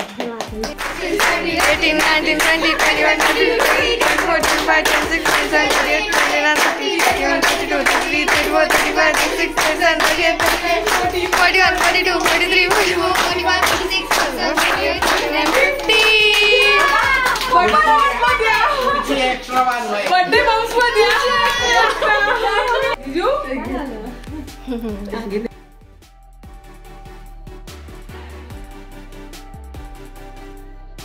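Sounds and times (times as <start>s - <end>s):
people clapping in rhythm: 0.0s - 23.0s
group singing: 0.6s - 23.0s.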